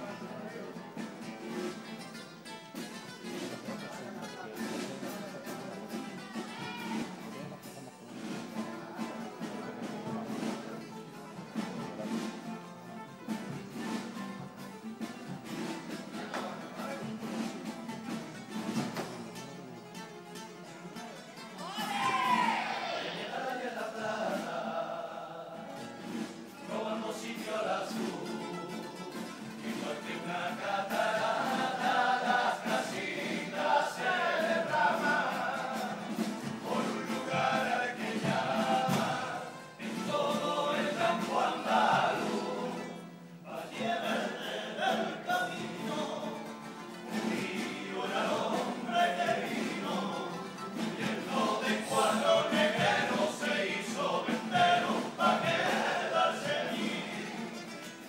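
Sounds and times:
instrumental accompaniment: 0:00.0 - 0:24.9, 0:25.6 - 0:58.0
group singing in chorus: 0:21.6 - 0:58.0.

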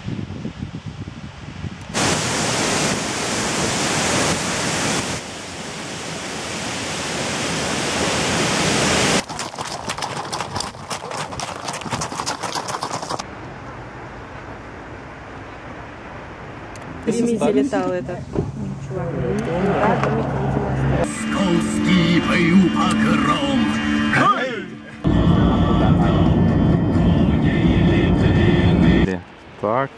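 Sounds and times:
wind buffeting microphone: 0:00.0 - 0:03.1
waterfall roaring: 0:01.9 - 0:13.3.

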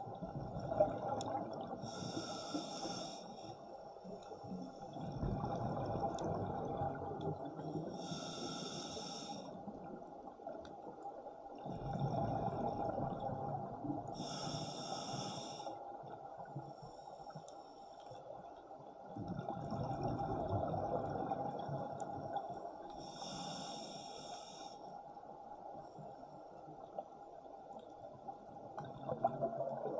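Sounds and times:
hissing regulator inhale: 0:01.8 - 0:03.7, 0:07.8 - 0:09.6, 0:14.2 - 0:15.8, 0:23.0 - 0:24.9.

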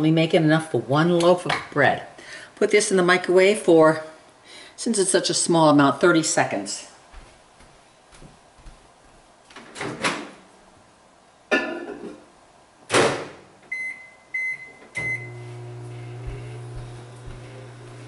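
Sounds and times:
short keypad beeps: 0:13.7 - 0:15.4
microwave running with low hum: 0:13.7 - 0:18.0.

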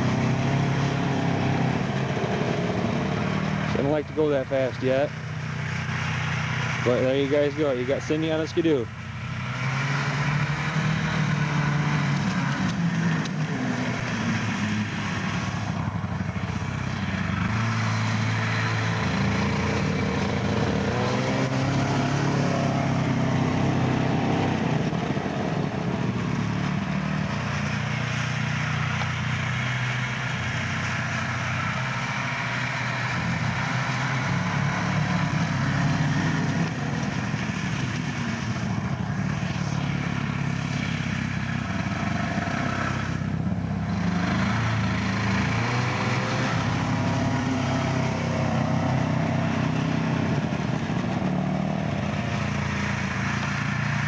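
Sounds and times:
snowmobile engine running: 0:00.0 - 0:54.0.

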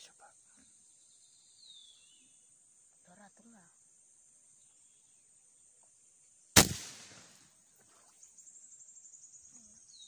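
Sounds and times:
airgun shot: 0:06.6 - 0:07.4.

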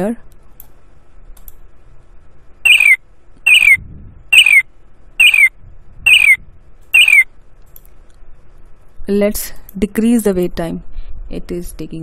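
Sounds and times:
bird squawk sound effect: 0:02.7 - 0:03.8, 0:04.4 - 0:04.6, 0:05.2 - 0:05.5, 0:06.1 - 0:06.4, 0:07.0 - 0:07.3.

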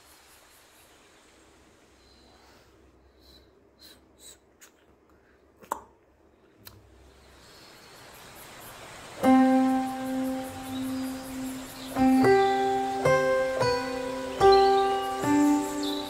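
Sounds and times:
plucked guitar music: 0:09.2 - 0:16.0.

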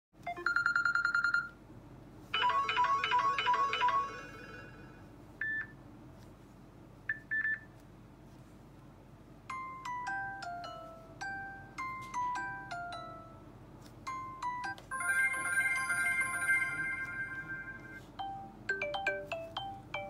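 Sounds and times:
rhythmic electronic tones: 0:14.6 - 0:20.0
ringing bell trill: 0:14.9 - 0:18.0
falling chime melody: 0:14.9 - 0:18.4.

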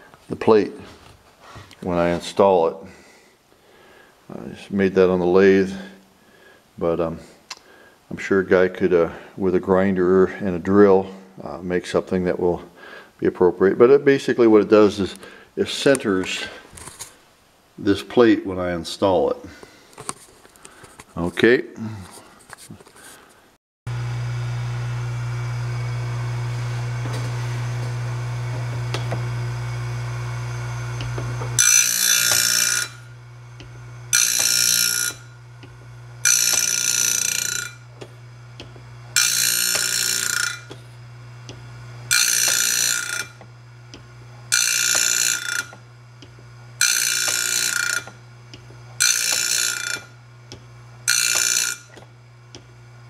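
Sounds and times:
electric grinder humming: 0:23.9 - 0:53.0
grinding wheel on blade: 0:23.9 - 0:53.0.

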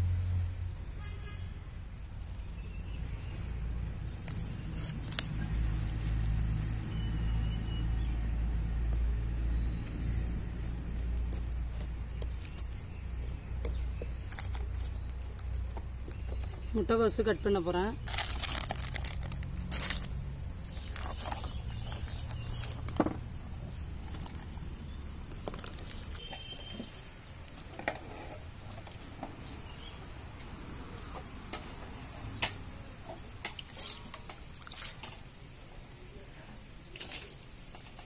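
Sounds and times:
water sloshing in steel bowl: 0:33.2 - 0:35.5.

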